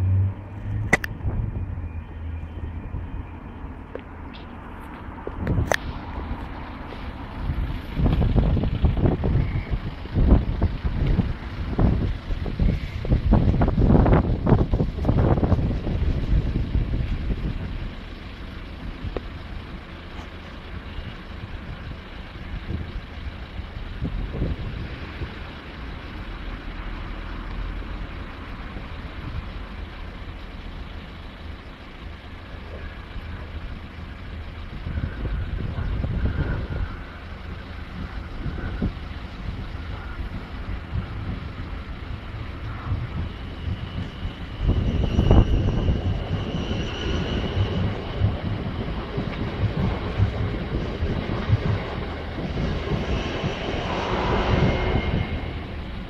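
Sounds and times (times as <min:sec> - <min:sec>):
idling road vehicles rumble: 0:00.0 - 0:56.0
wind buffeting microphone: 0:05.1 - 0:19.8, 0:20.7 - 0:26.2, 0:34.2 - 0:56.0.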